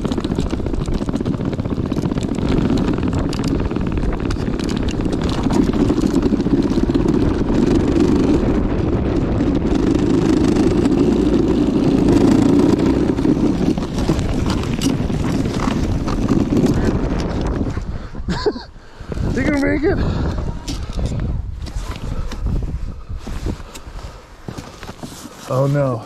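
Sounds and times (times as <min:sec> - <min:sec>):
electric motors and tracks droning: 0:00.0 - 0:17.6.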